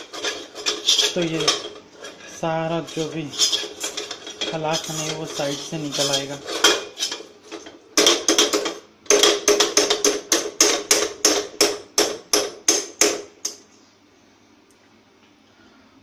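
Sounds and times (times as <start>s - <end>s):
milk scraped in pan: 0.0s - 7.2s
metal utensil knocking on pan: 8.0s - 13.2s.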